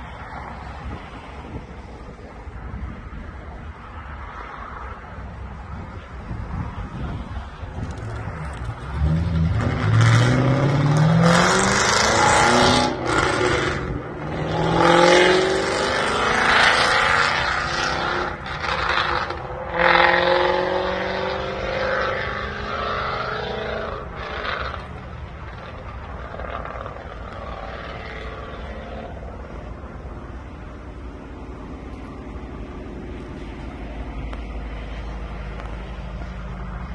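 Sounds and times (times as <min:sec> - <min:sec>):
car engine accelerating hard: 0:07.8 - 0:30.9.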